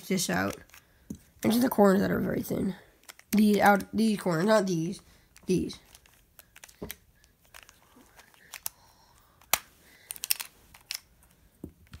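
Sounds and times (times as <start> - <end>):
plastic puzzle pieces clicking: 3.0 - 4.2, 5.4 - 11.1.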